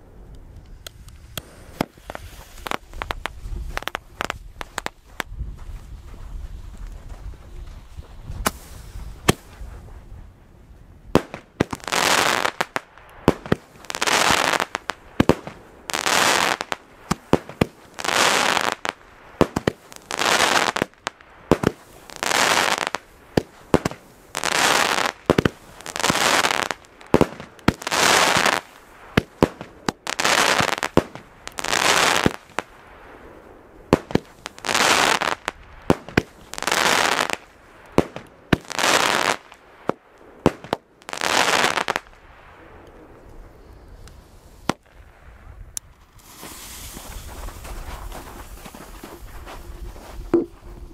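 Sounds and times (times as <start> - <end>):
fireworks cracking: 0.7 - 6.2, 11.1 - 42.8, 45.8 - 50.9
fireworks hissing: 1.0 - 5.2, 8.4 - 9.6, 46.0 - 49.5.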